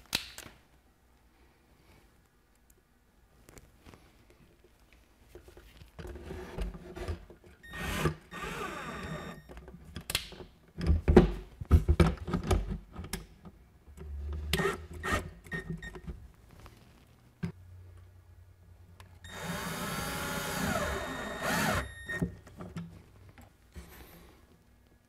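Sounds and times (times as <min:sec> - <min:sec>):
cordless drill driving screws: 0:07.7 - 0:09.4, 0:19.3 - 0:22.2.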